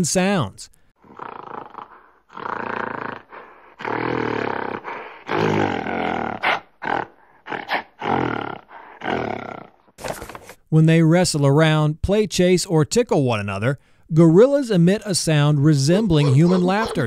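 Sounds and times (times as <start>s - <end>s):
animal grunts: 1.0s - 9.8s, 16.2s - 17.0s
large animal calling: 16.1s - 17.0s.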